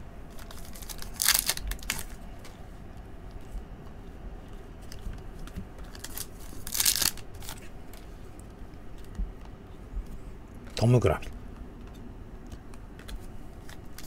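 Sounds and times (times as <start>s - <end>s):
card pack wrapper crinkling: 0.3s - 2.2s, 5.8s - 7.6s, 13.6s - 14.0s
wrapper torn open: 0.3s - 2.2s, 5.9s - 7.6s.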